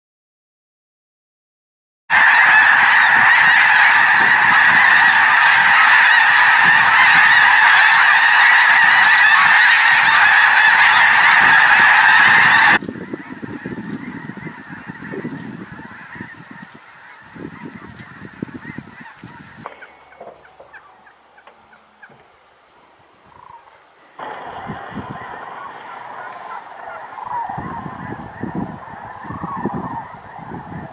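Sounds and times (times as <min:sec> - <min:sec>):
snow geese honking: 0:02.1 - 0:30.9
low rumbling: 0:24.2 - 0:29.6.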